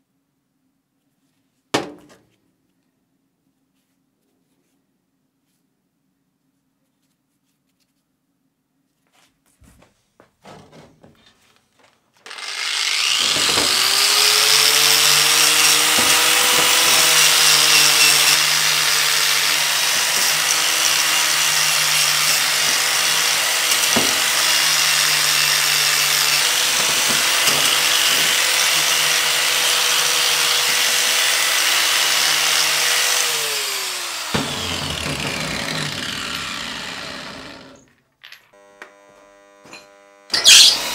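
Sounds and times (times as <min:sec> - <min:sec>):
angle grinder wire wheel on steel: 0:12.3 - 0:37.0, 0:37.7 - 0:40.9.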